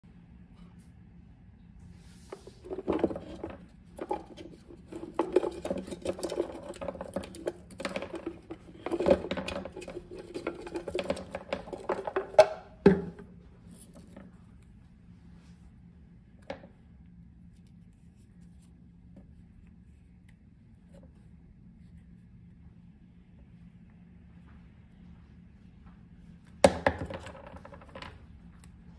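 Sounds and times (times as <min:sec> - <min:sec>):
tape rolls clattering on wooden table: 0:02.3 - 0:14.3, 0:26.6 - 0:28.2
tape rolls rattling in plastic jar: 0:02.3 - 0:14.3.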